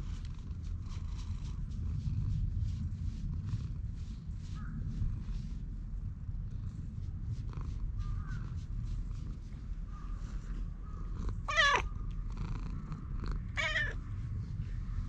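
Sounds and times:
cat purring: 0:00.0 - 0:15.0
cat meowing: 0:11.4 - 0:12.0, 0:13.5 - 0:14.0.

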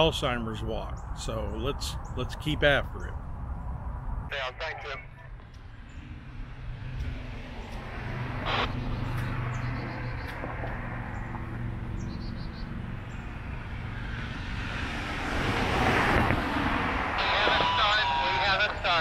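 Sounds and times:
rush of passing vehicles: 0:00.0 - 0:19.0
low engine hum: 0:03.1 - 0:19.0
short burst of noise: 0:08.4 - 0:09.2
bird chirping: 0:08.8 - 0:10.5, 0:11.1 - 0:13.6.

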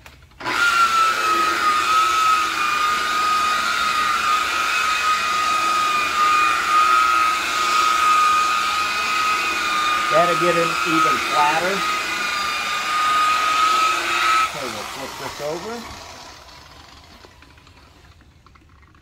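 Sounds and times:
electric buffer whining: 0:00.0 - 0:19.0.

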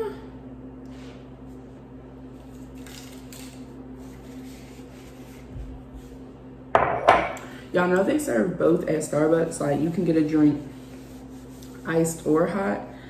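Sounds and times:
low steady hum: 0:00.0 - 0:13.0
mug knocking on counter: 0:06.8 - 0:07.4
paper napkin rustling on mug: 0:10.0 - 0:12.3.

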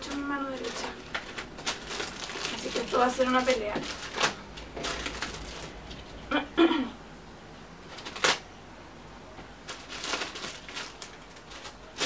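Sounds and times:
plastic wrapping rustling: 0:00.0 - 0:06.3, 0:07.8 - 0:08.5, 0:09.6 - 0:12.0.

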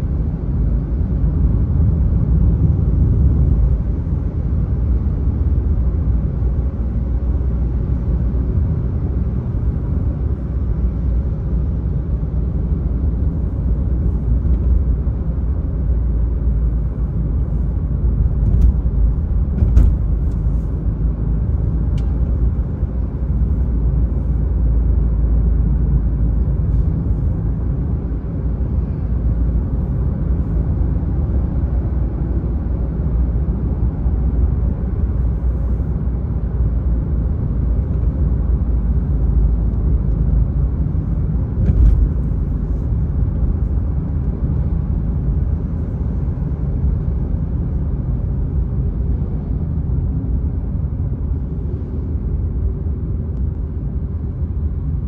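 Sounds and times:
car road rumble: 0:00.0 - 0:55.0
brief thump: 0:19.5 - 0:20.2.

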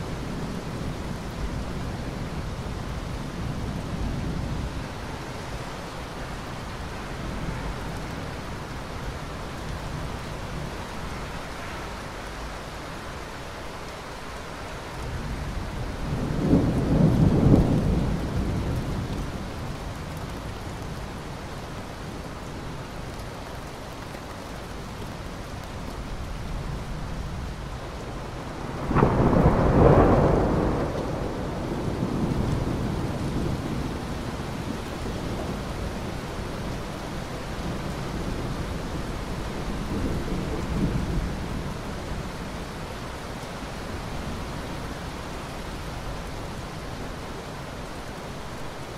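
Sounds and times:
steady rain: 0:00.0 - 0:48.9
thunder rumbling: 0:15.2 - 0:20.0, 0:28.1 - 0:36.8.

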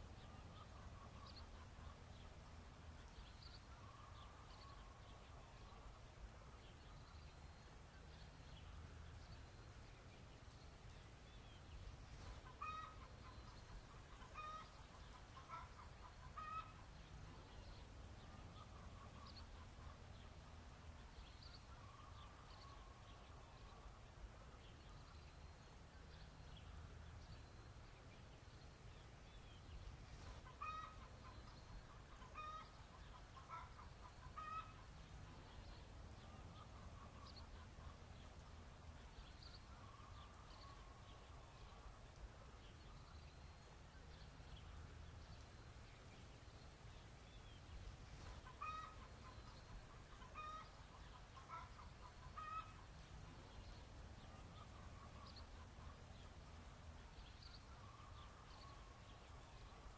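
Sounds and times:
chickens clucking: 0:12.3 - 0:16.8, 0:30.3 - 0:34.9, 0:48.2 - 0:52.9.

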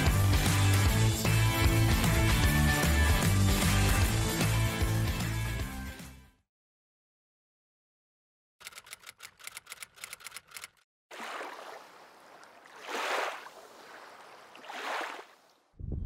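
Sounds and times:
rapid sharp clicks: 0:08.6 - 0:10.8.

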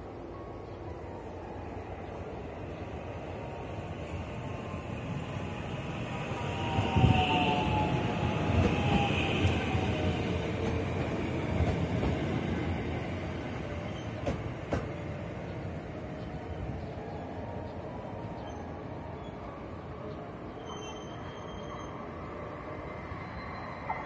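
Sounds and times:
electric train whine: 0:00.0 - 0:24.0
train wheels clattering over rails: 0:06.6 - 0:15.2.

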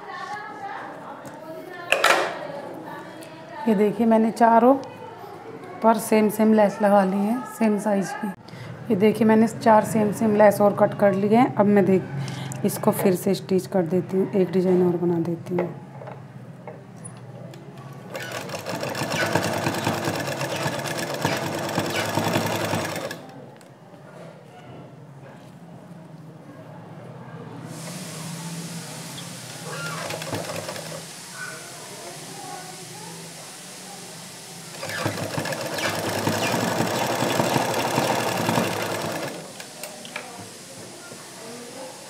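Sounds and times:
sewing machine running: 0:18.1 - 0:23.3, 0:29.8 - 0:31.0, 0:34.7 - 0:39.6.

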